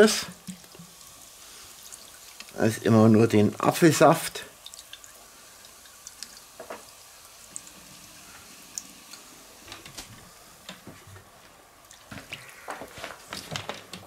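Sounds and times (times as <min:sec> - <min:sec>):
liquid trickling and splashing: 0:00.0 - 0:10.8.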